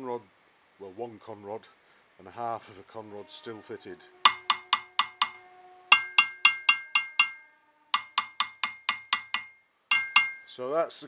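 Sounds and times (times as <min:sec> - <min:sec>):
hammer taps ringing on metal: 0:04.3 - 0:07.4, 0:08.0 - 0:10.5.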